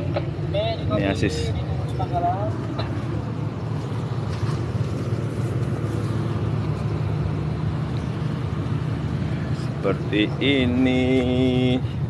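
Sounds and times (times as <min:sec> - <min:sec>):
boat diesel engine drone: 0:00.0 - 0:12.0.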